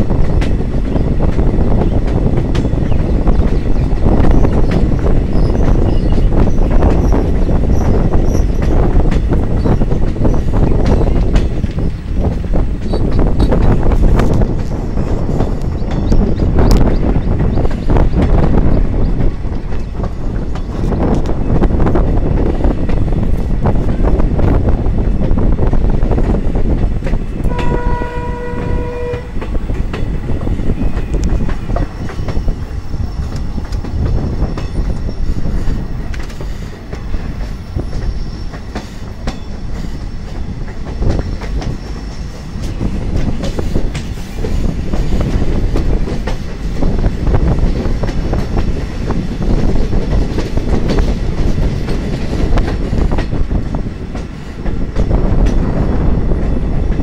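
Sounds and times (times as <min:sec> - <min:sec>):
train wheels clickety-clack: 0:00.0 - 0:57.0
train horn blast: 0:27.4 - 0:29.5
high wheel squeal: 0:37.5 - 0:40.5.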